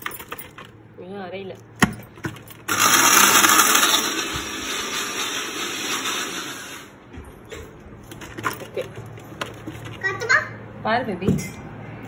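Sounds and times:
electric mixer grinder running: 2.7s - 7.0s.

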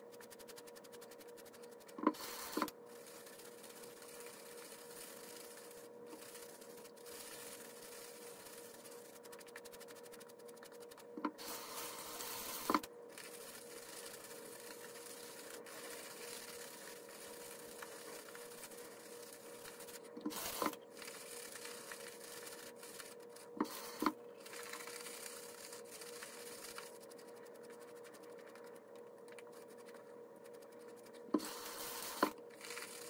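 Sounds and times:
faint steady hum: 0.0s - 33.0s
shaving brush scratchy brushing: 0.0s - 33.0s.

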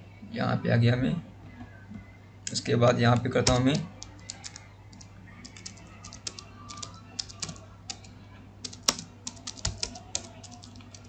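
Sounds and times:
typing on keyboard: 3.4s - 11.0s.

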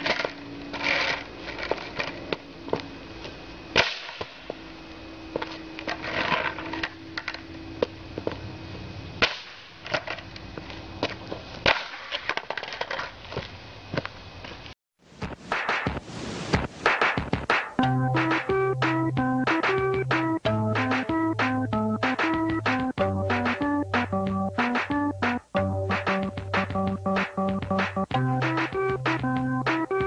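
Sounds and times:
skateboard cracking on asphalt: 0.0s - 2.4s, 5.4s - 7.4s, 9.8s - 14.1s
skateboard wheels rolling: 0.0s - 3.5s, 5.3s - 8.4s, 9.8s - 14.6s.

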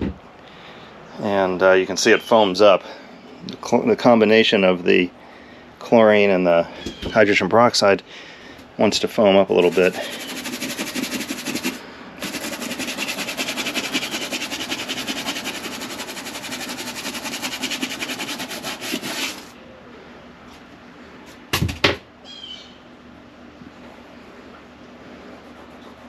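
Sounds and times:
scrub brush scrubbing wet upholstery: 9.6s - 19.5s.

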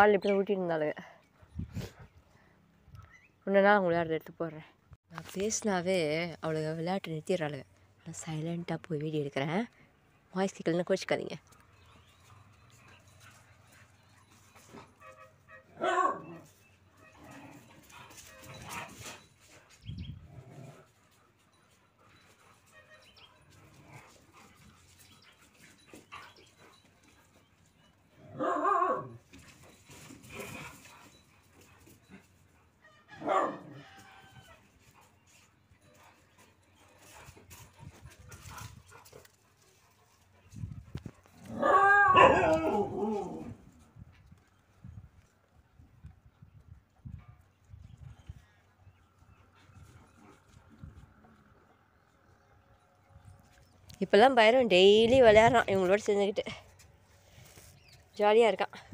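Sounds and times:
dog barking: 15.0s - 16.4s, 33.1s - 33.8s, 41.6s - 43.0s
dog yowling: 28.3s - 29.2s, 41.5s - 43.6s.

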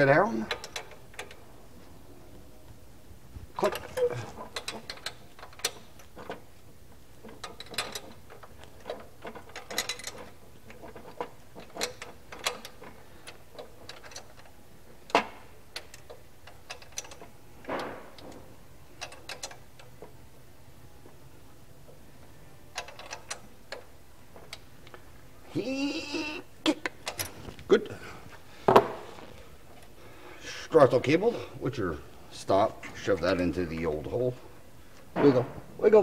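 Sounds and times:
wrench clicking on metal nuts: 3.6s - 6.4s, 7.3s - 14.5s.

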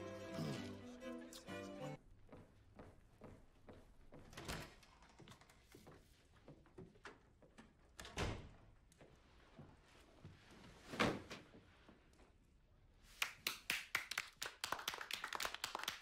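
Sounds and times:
people clapping: 13.2s - 16.0s.

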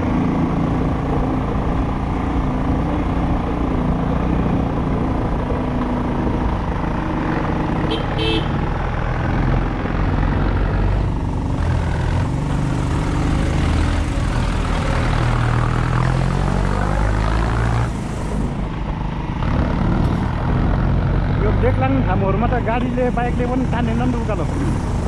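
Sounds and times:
steady rushing noise: 8.8s - 25.0s.

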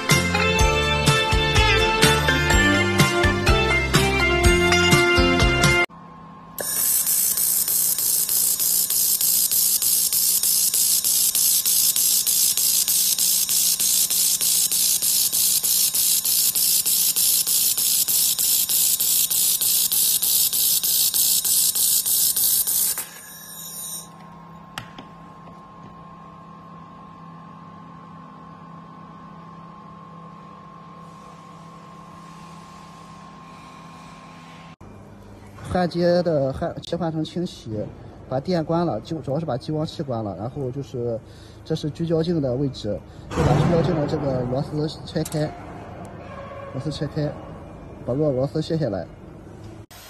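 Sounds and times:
laser welding gun hissing: 6.6s - 24.2s.

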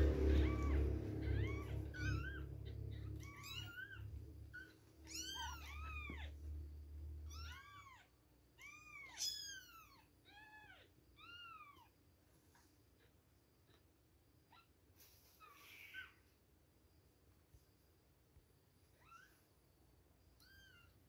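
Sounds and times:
kittens mewing: 0.0s - 6.4s.

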